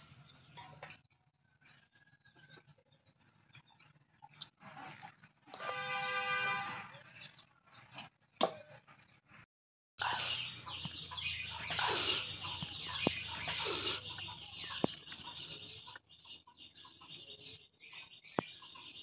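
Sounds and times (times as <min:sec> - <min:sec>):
chickens clucking: 0:10.0 - 0:19.0.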